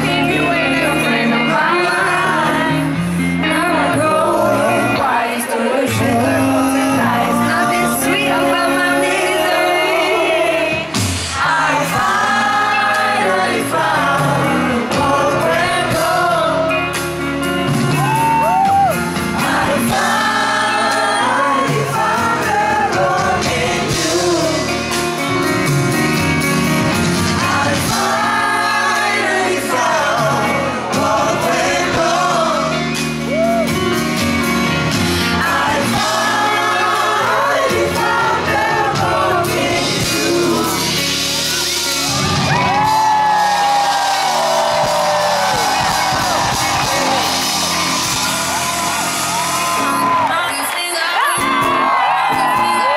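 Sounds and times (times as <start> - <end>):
woman singing into microphone: 0.0 - 16.9, 50.1 - 52.9
backing music: 0.0 - 52.9.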